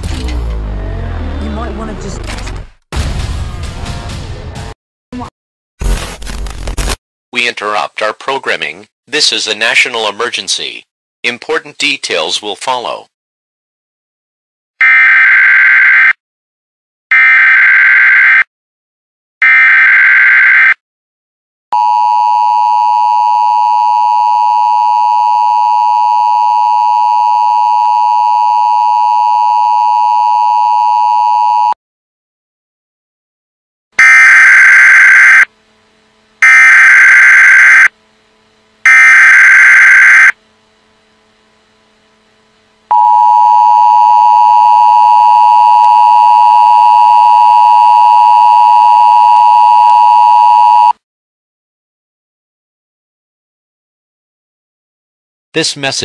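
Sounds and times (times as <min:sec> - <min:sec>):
harsh data bursts: 0:36.4 - 0:37.9, 0:38.9 - 0:40.4.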